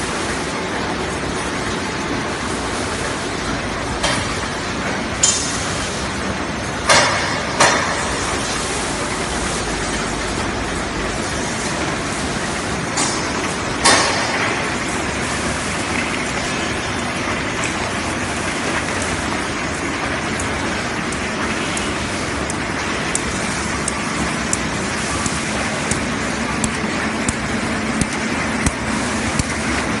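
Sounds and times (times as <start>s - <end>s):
sharp machine clacks: 20.1s - 30.0s.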